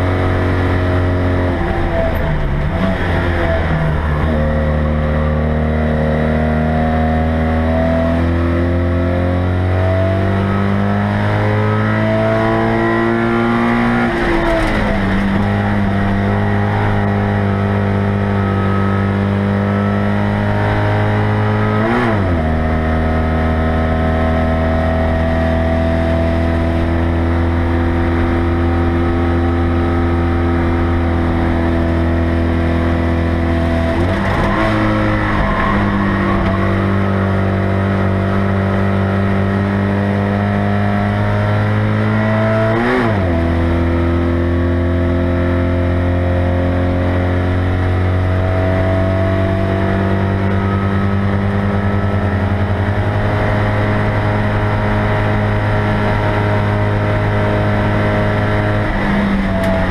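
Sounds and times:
race car engine running hard: 0.0s - 59.9s.

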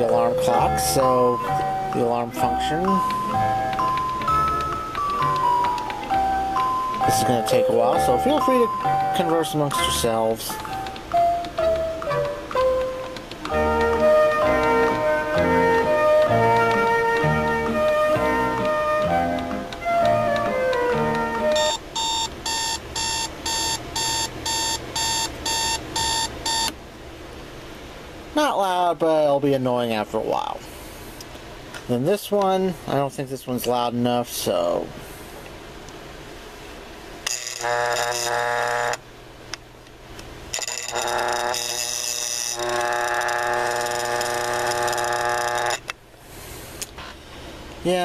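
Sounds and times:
alarm clock beeping: 0.0s - 26.7s, 40.6s - 45.8s.

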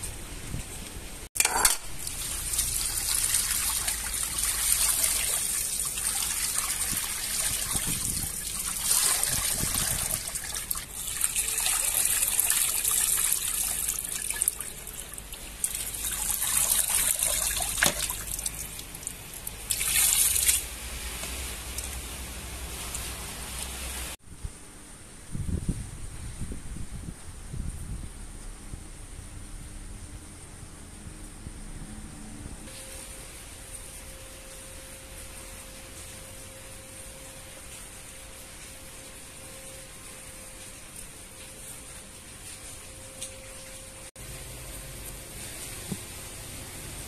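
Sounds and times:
water pouring and splashing: 1.3s - 24.2s, 32.7s - 47.0s.

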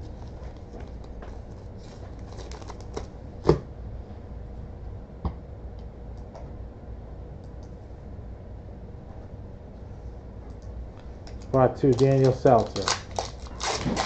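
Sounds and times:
cards rustling and clicking: 0.4s - 3.1s, 11.2s - 14.0s.

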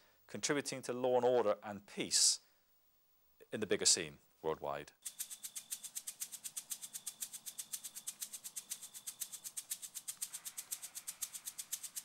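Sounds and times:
high-pitched rattling pulse: 5.0s - 12.0s.

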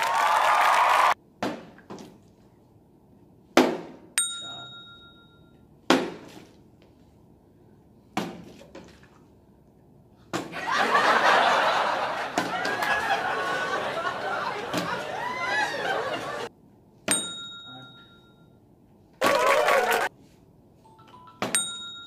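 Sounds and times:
people laughing and shouting: 10.5s - 16.5s, 19.2s - 20.1s
bottle clink: 17.1s - 18.4s, 21.4s - 22.0s.

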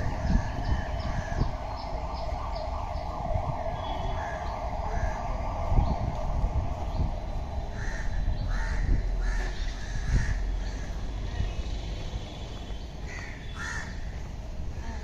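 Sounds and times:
low rumble: 0.0s - 11.8s
crows cawing: 4.1s - 5.2s, 7.7s - 10.8s, 13.0s - 14.1s.

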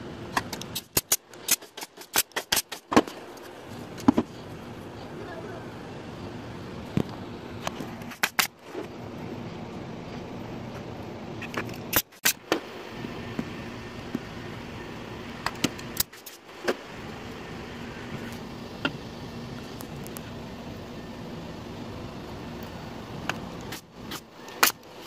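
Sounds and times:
steady background hum: 0.0s - 25.0s
nail gun firing: 0.7s - 3.1s.

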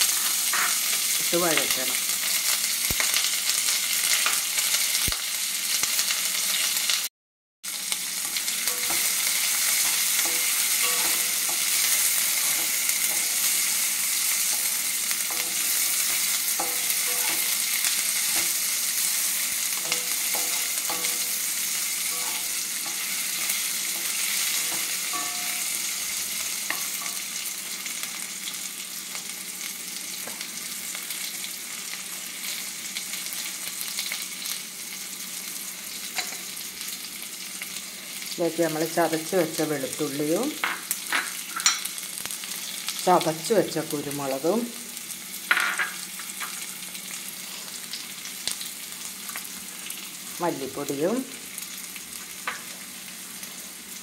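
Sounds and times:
spatula scraping a pan: 0.0s - 1.0s, 8.2s - 26.0s
onions sizzling in hot oil: 0.0s - 54.0s.

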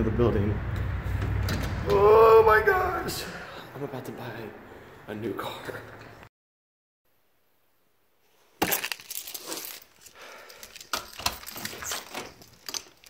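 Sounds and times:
keys clinking and jangling: 8.6s - 13.0s.

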